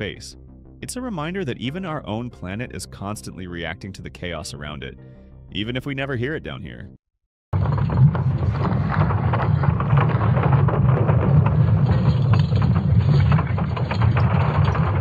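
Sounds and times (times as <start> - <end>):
dense crackling rumble: 7.5 - 15.0.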